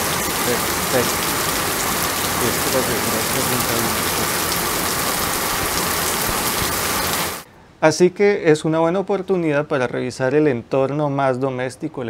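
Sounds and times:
heavy rain pouring: 0.0s - 7.5s.

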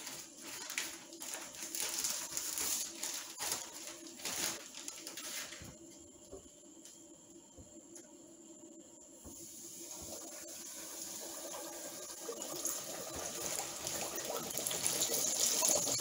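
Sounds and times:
fish deep-frying in hot oil: 9.4s - 16.0s.

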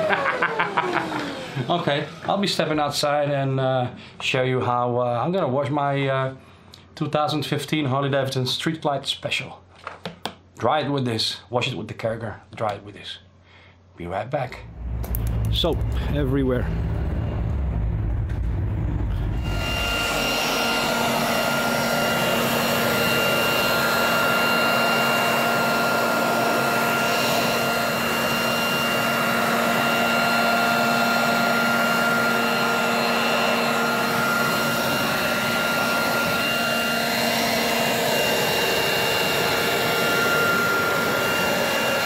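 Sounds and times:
electric leaf blower running: 0.0s - 2.7s, 16.8s - 42.0s.

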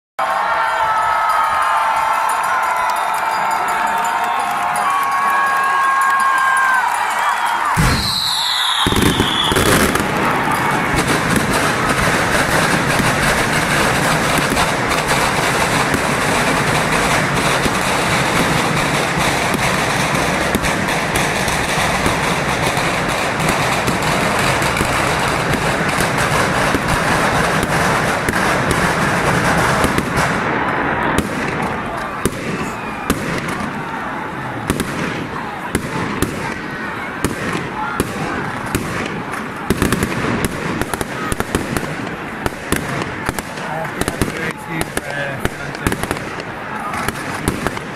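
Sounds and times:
crowd voices: 0.2s - 47.9s
firecrackers crackling and banging: 0.9s - 47.9s
falling whistle: 7.2s - 9.7s.

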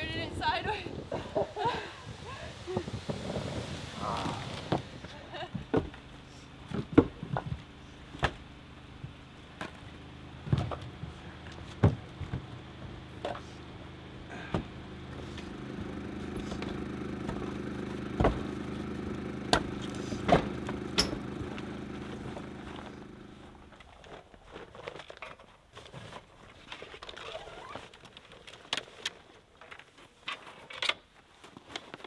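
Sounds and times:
vehicle engine idling: 1.0s - 23.9s.

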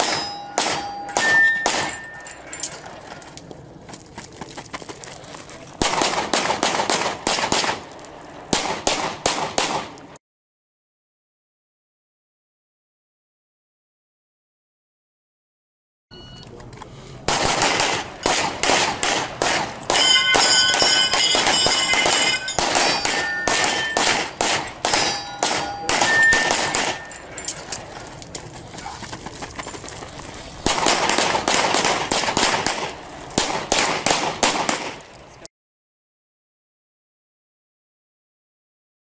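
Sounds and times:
pistol shots: 0.0s - 2.3s, 5.8s - 10.1s, 17.2s - 27.8s, 30.6s - 35.2s
steel targets ringing: 0.0s - 3.3s, 17.8s - 28.0s.

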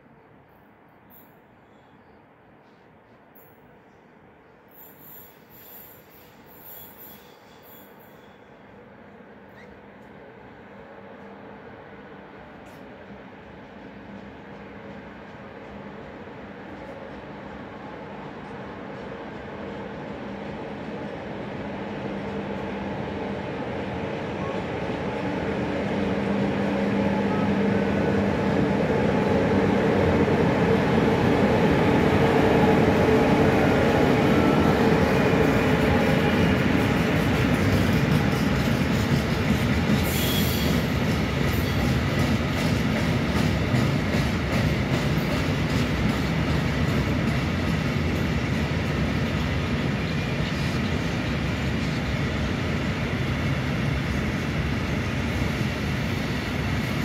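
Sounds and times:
high wheel squeal: 4.7s - 8.6s, 40.0s - 40.9s
electric locomotive humming: 10.0s - 57.0s
train wheels clicking over rail joints: 35.0s - 50.8s.

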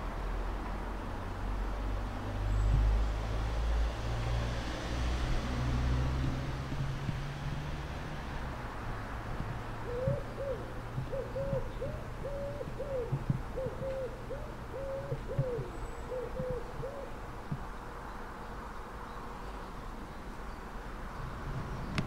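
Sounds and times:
bird cooing: 9.8s - 17.2s.

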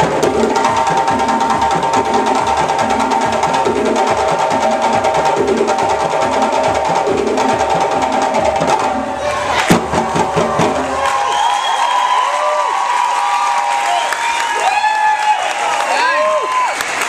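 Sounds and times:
djembe drums playing: 0.0s - 11.2s.

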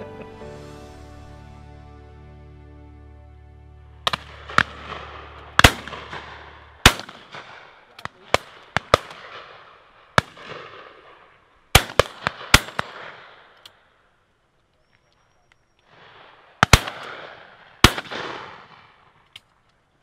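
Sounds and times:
shotguns firing: 4.0s - 13.6s, 15.9s - 19.1s.

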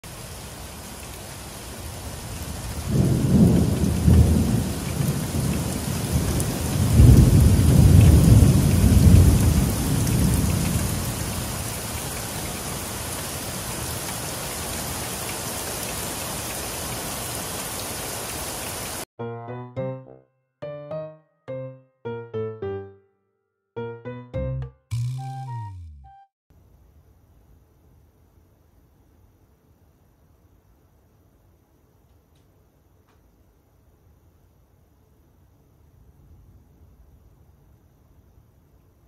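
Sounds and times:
heavy rain falling: 0.1s - 19.0s
thunder rumbling: 2.8s - 11.5s.

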